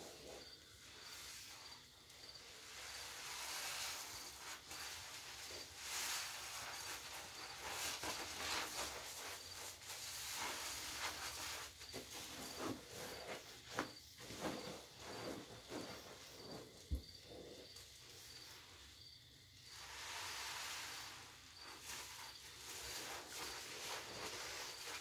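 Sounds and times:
sponges squelching in foam: 2.5s - 17.6s, 19.7s - 25.0s.

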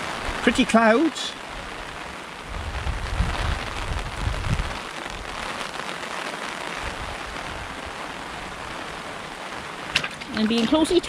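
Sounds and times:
rain falling on a river: 0.0s - 11.0s
low rumble on microphone: 2.4s - 5.4s.

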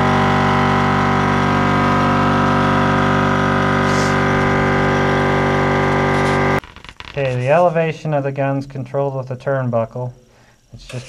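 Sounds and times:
air compressor motor hum: 0.0s - 6.7s
air hiss: 3.8s - 4.3s.

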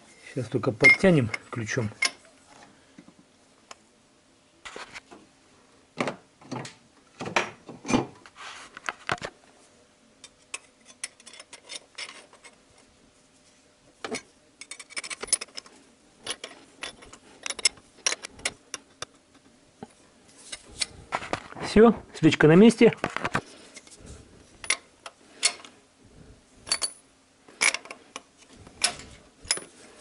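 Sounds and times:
metal wrench clinking and knocking: 14.1s - 19.1s, 26.6s - 27.0s, 28.8s - 29.7s.

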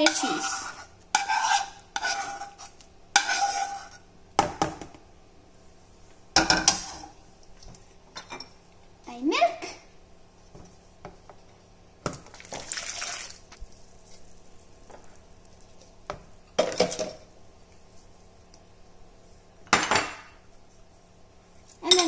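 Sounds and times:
spoon knocking and scraping bowl: 0.0s - 5.0s
milk pouring into plastic bowl: 12.3s - 13.5s.

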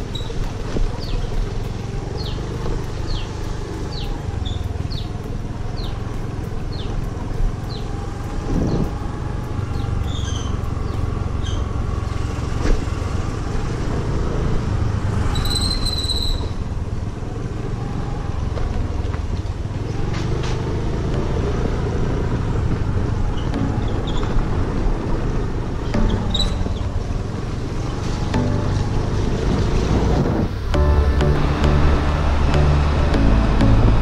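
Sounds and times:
scooter engine running: 0.0s - 34.0s
tyres rumbling over rough road: 0.0s - 34.0s
high-pitched tone: 21.1s - 22.5s, 23.5s - 34.0s.

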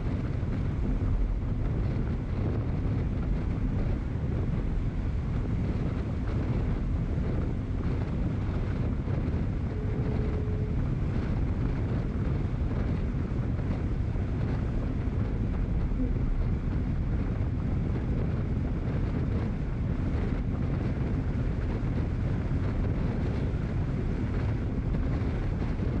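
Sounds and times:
wind buffeting microphone: 0.0s - 26.0s
faint brief tone: 9.7s - 10.8s.

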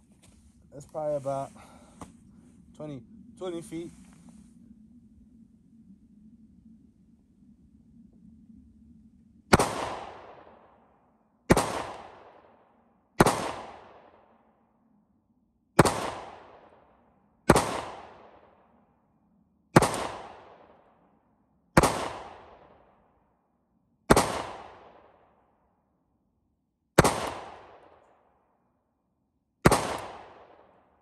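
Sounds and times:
pistol shots with echo: 9.5s - 10.7s, 11.5s - 12.6s, 13.2s - 14.2s, 15.8s - 16.9s, 17.5s - 18.6s, 19.8s - 20.8s, 21.8s - 22.8s, 24.1s - 25.3s, 27.0s - 28.2s, 29.6s - 31.0s.

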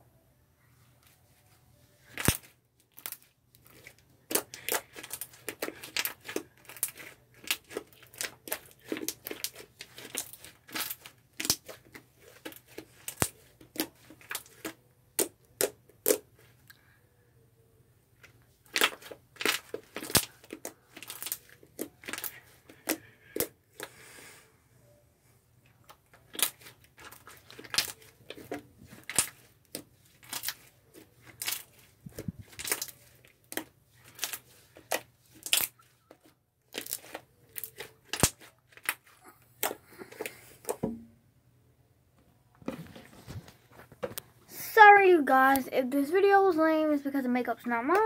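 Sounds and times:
sticky pops and crackles: 2.1s - 16.3s, 18.7s - 23.9s, 25.8s - 40.8s.

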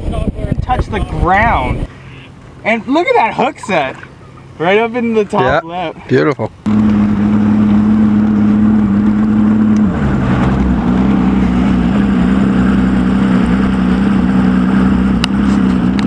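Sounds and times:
outboard motor running: 0.7s - 16.0s.

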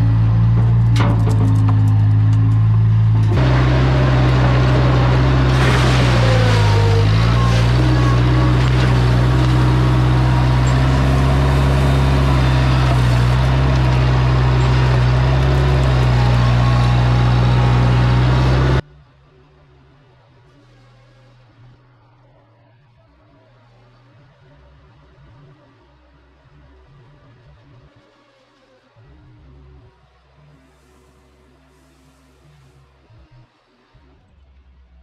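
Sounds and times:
diesel loader engine running: 0.0s - 18.8s.

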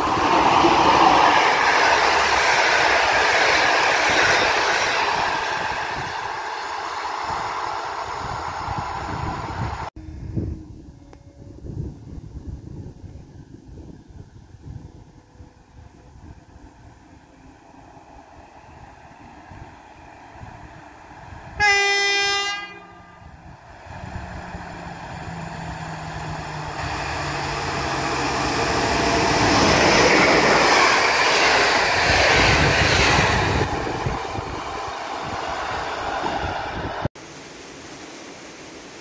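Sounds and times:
passing train rumble: 0.0s - 37.1s
train horn blast: 10.0s - 12.5s, 21.6s - 23.5s.

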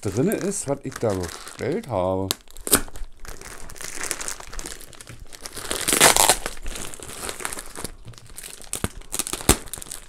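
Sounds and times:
plastic bag crinkling: 0.0s - 10.0s
plastic tearing: 0.0s - 10.0s.

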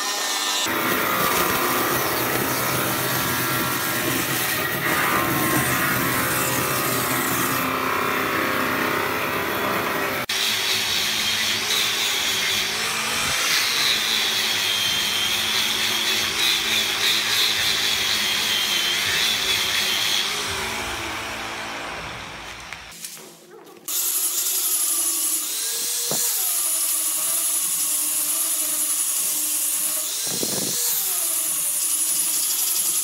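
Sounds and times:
angle grinder whining on wood: 0.0s - 23.0s, 23.9s - 33.0s
band saw cutting wood: 0.0s - 23.0s, 23.9s - 33.0s.

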